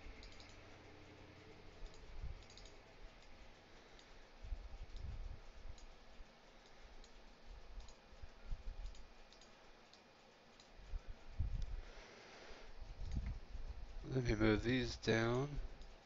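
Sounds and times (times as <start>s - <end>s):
quiet computer mouse clicks: 0.0s - 0.7s, 1.7s - 4.2s, 4.8s - 6.0s, 6.6s - 11.0s, 13.0s - 13.4s, 15.7s - 16.0s
soft low thumps: 12.9s - 14.0s.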